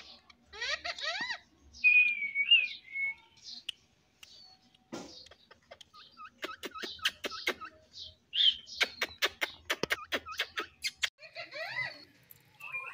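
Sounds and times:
parakeet warbling chatter: 0.1 - 1.5, 8.8 - 12.1
parakeet clicks and chirps: 3.4 - 7.8, 8.6 - 11.1.

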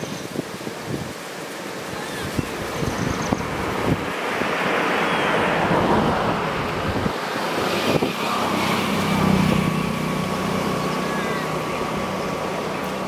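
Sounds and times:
steady engine hum: 0.0 - 13.0
vehicle passing: 3.4 - 13.0.

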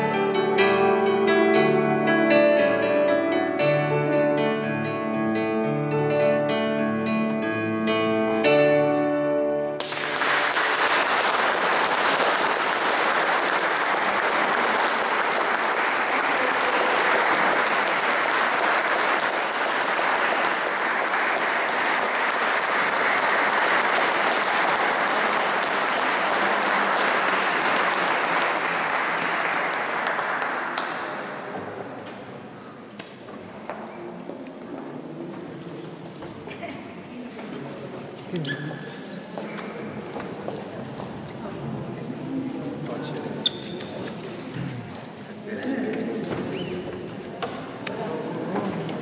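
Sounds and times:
congregation applauding: 9.8 - 32.0.

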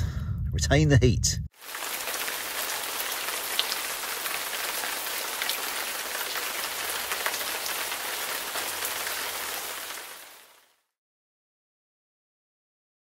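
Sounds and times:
raindrop hits: 1.6 - 10.6
steady rain hiss: 1.6 - 10.8.

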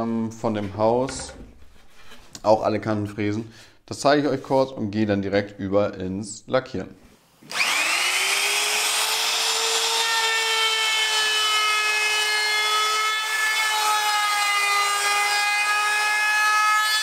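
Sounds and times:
router cutting wood: 7.4 - 17.0.

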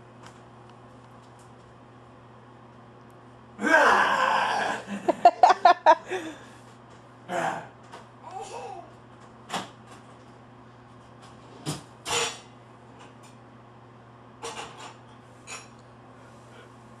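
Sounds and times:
faint steady hum: 0.0 - 9.3.

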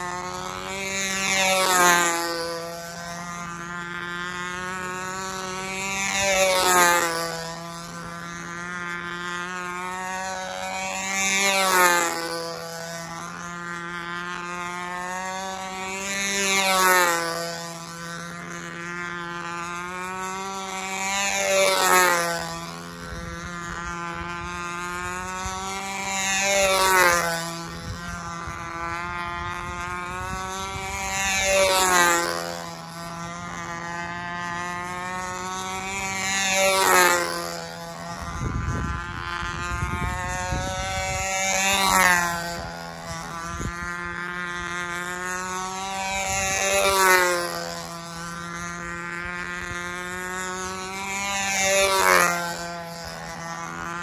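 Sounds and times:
model airplane engine passing: 0.0 - 54.0.

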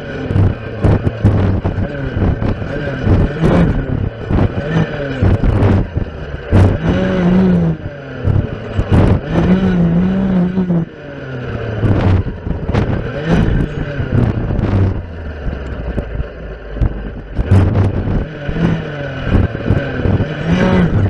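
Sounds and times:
clearing saw engine revving: 0.0 - 21.0.

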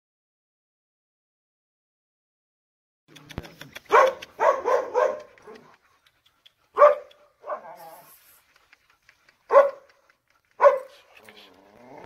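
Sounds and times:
dog barking: 3.9 - 5.7, 6.8 - 7.9, 9.5 - 10.0, 10.6 - 11.0.

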